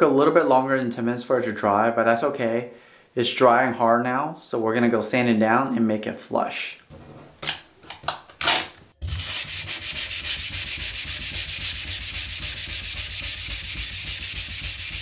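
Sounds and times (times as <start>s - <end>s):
sandpaper sanding back and forth: 9.0s - 15.0s.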